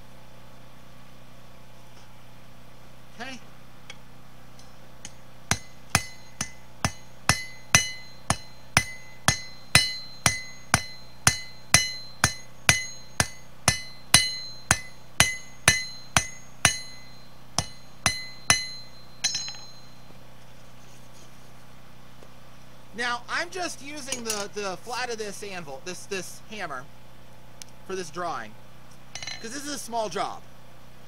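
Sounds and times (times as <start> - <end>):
hammer striking steel on anvil: 5.0 - 20.1, 29.2 - 29.6.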